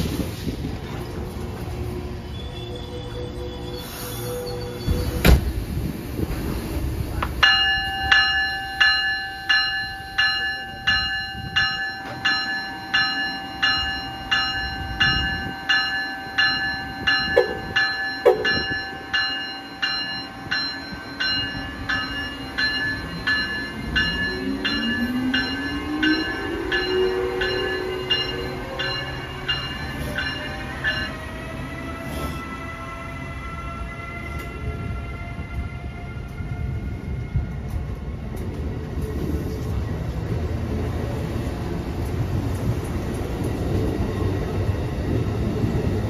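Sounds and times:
locomotive bell ringing: 0:07.4 - 0:31.9.

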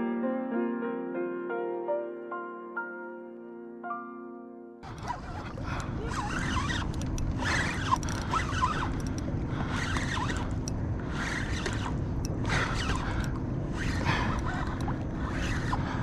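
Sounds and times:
fishing reel clicking and whirring: 0:04.8 - 0:16.0
low rumble: 0:04.8 - 0:16.0.

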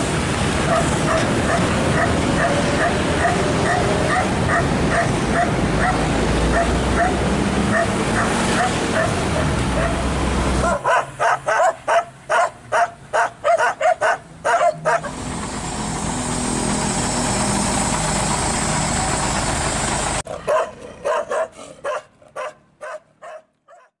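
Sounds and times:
truck diesel engine running: 0:00.0 - 0:11.2, 0:11.9 - 0:20.6
dogs barking: 0:00.6 - 0:15.2, 0:20.3 - 0:24.0.

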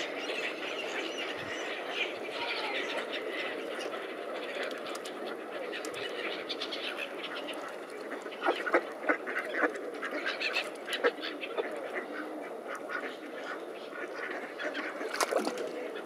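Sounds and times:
ducks quacking: 0:00.0 - 0:16.0
waterbirds calling: 0:00.0 - 0:16.0.

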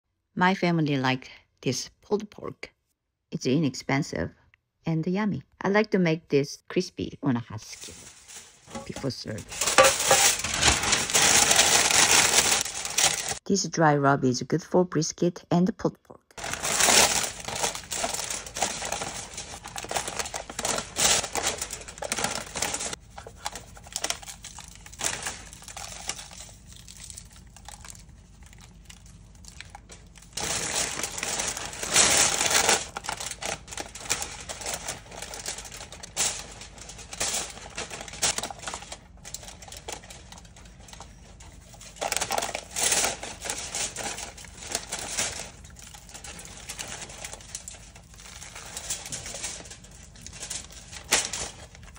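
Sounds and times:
foil and paper crinkling: 0:07.6 - 0:13.4, 0:16.4 - 0:51.9.

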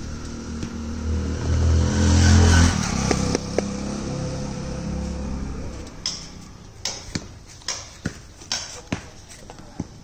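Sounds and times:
vehicle engine passing by: 0:00.0 - 0:06.8.

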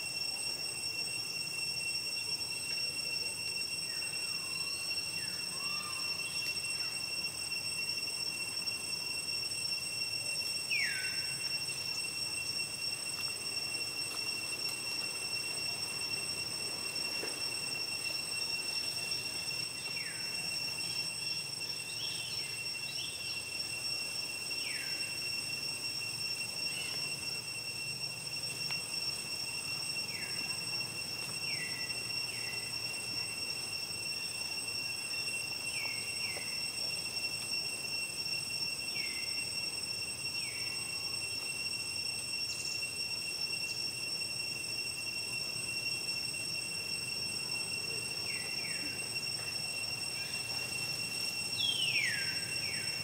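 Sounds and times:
high-pitched insect drone: 0:00.0 - 0:53.0.

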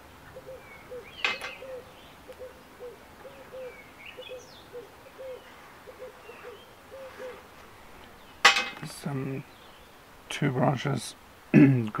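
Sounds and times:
small birds chirping: 0:00.0 - 0:11.2
dove cooing: 0:00.2 - 0:07.6
short rustle: 0:07.0 - 0:09.2.

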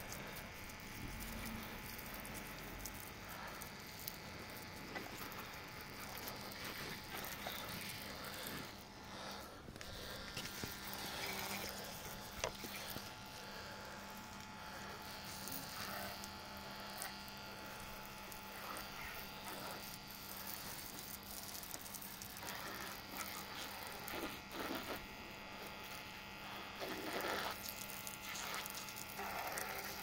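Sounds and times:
pressure washer humming: 0:00.0 - 0:16.8.

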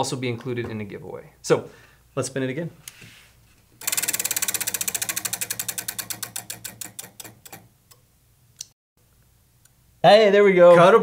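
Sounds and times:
prize wheel ticking: 0:03.8 - 0:07.7.

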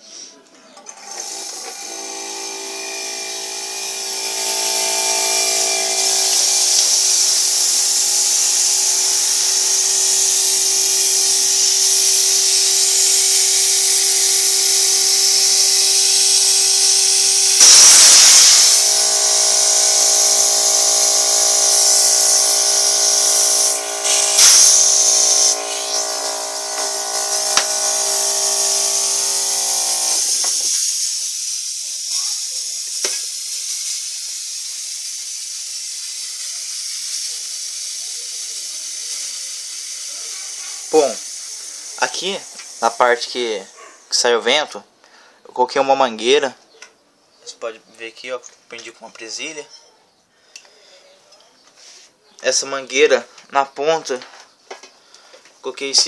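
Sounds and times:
compressor electric hum: 0:00.9 - 0:31.0
air hissing from hose: 0:01.2 - 0:43.8.

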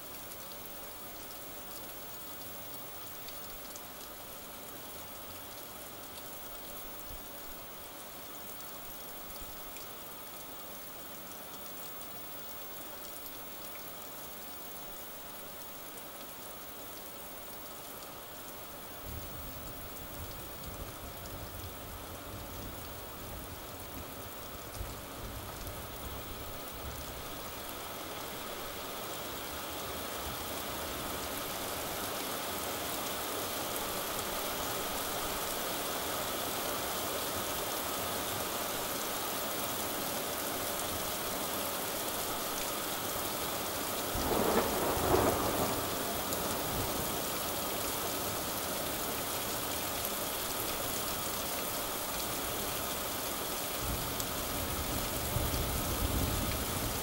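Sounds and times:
heavy rain hissing: 0:18.2 - 0:57.0
thunder rumbling: 0:44.2 - 0:45.9.

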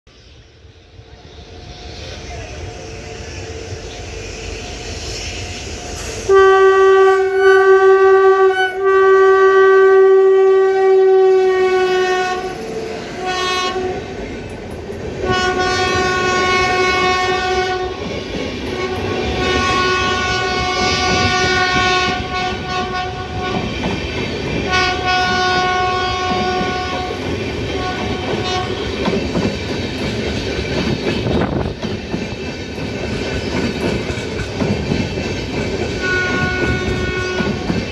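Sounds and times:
train coaches rumbling past: 0:00.1 - 0:37.9
locomotive horn blasts: 0:06.3 - 0:14.2, 0:15.2 - 0:18.0, 0:18.7 - 0:23.7, 0:24.7 - 0:29.0, 0:36.0 - 0:37.7.

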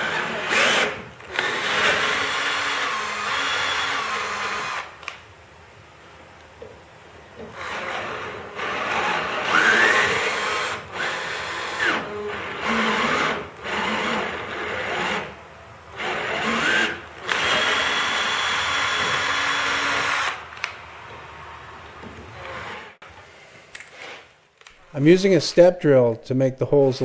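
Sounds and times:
power drill tapping threads: 0:16.0 - 0:20.7.

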